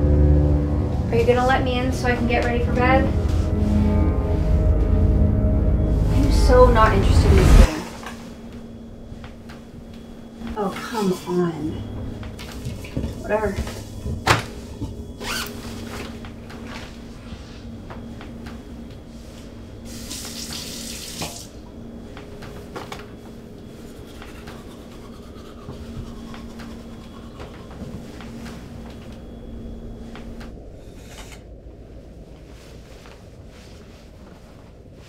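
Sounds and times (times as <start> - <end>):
low steady hum: 0.0 - 35.0
tap water gushing into sink: 19.9 - 21.5.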